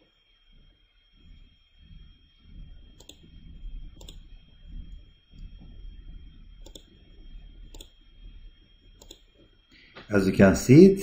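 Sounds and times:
low rumbling background: 0:00.2 - 0:11.0
computer mouse clicks: 0:03.0 - 0:03.3, 0:04.0 - 0:04.3, 0:06.6 - 0:07.0, 0:07.7 - 0:08.0, 0:09.0 - 0:09.3.

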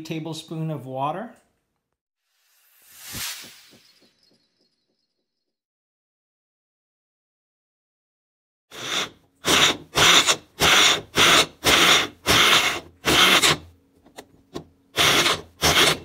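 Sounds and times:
blender pulsing: 0:08.7 - 0:13.6, 0:15.0 - 0:16.0.

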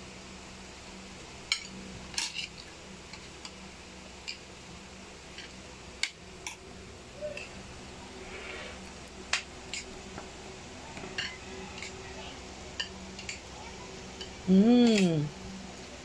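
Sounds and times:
steady low hum: 0:00.0 - 0:16.0
metal spoon clinking on plates: 0:11.0 - 0:12.0.

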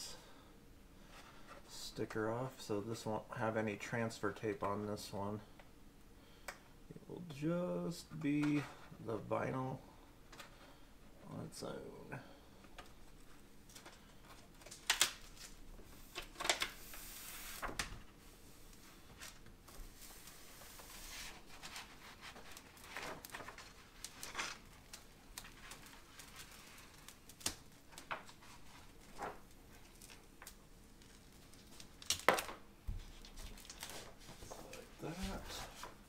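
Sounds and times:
paper backing crinkling: 0:12.8 - 0:36.0
decal peeling hiss: 0:16.7 - 0:17.8.

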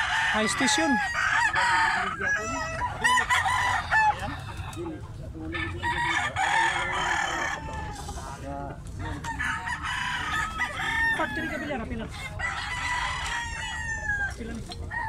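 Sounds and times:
chickens clucking: 0:00.0 - 0:15.0
roosters crowing: 0:00.0 - 0:15.0.

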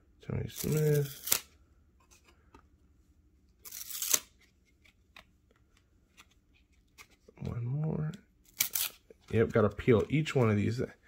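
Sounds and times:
cards peeling apart with a snap: 0:00.6 - 0:01.5, 0:03.6 - 0:07.2.

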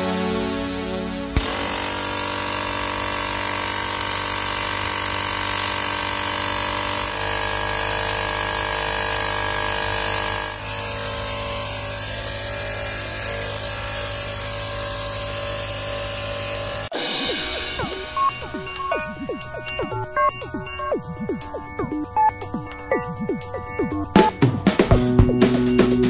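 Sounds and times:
vacuum motor hum and whine: 0:07.0 - 0:16.8.

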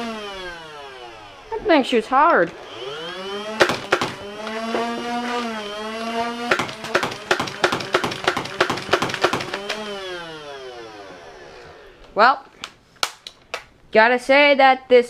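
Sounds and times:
toy blaster flywheels whining: 0:02.5 - 0:12.0
foam ball shots cracking: 0:03.6 - 0:04.3, 0:06.5 - 0:09.8.

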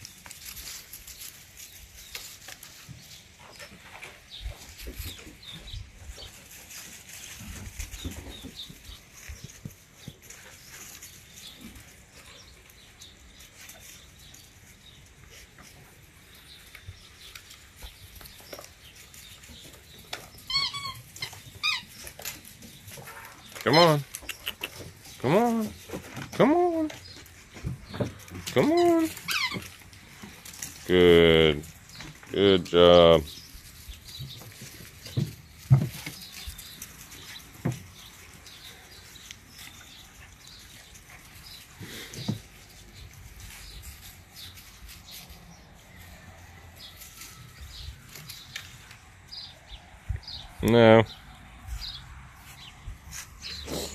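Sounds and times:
paws scratching and rustling: 0:00.0 - 0:30.9, 0:33.3 - 0:53.9
puppy whining: 0:20.4 - 0:22.0, 0:28.8 - 0:29.8.

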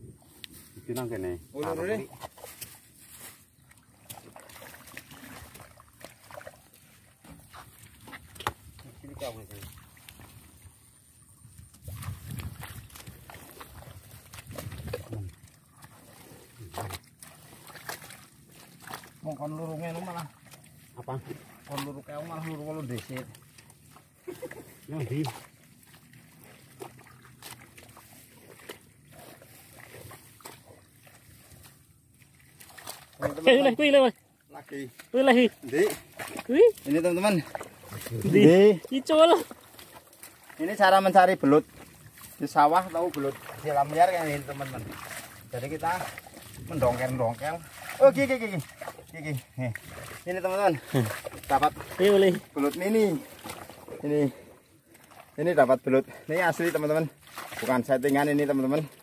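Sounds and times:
squelching and splashing in mud: 0:00.0 - 0:59.0
small clicks and dribbles: 0:07.2 - 0:10.4, 0:11.6 - 0:33.4.

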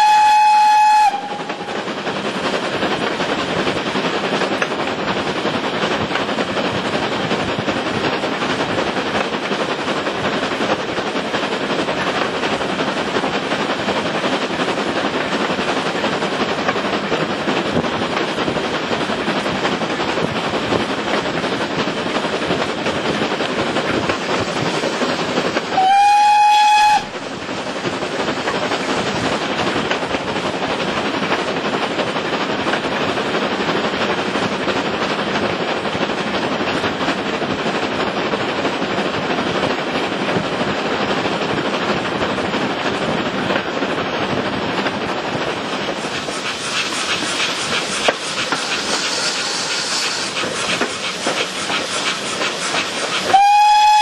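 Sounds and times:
steam whistle: 0:00.0 - 0:01.7, 0:25.8 - 0:27.1, 0:53.3 - 0:54.0
train running on rails: 0:00.0 - 0:54.0.

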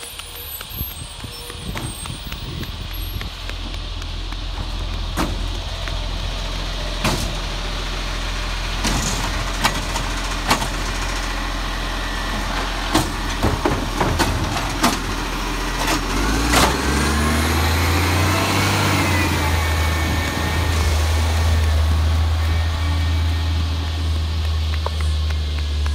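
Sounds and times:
garbage truck engine running: 0:00.0 - 0:25.9
bins knocking and clanking: 0:12.9 - 0:15.2
rising mechanical whine: 0:15.5 - 0:25.9.

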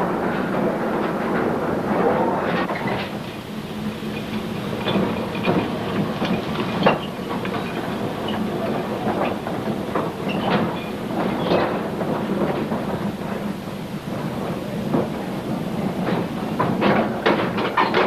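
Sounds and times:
machinery humming and rumbling: 0:00.0 - 0:18.0
metallic clanks and knocks: 0:16.0 - 0:18.0.

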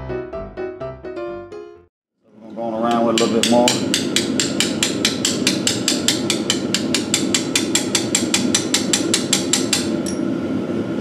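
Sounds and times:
rapid hammer taps on metal: 0:02.9 - 0:09.9.

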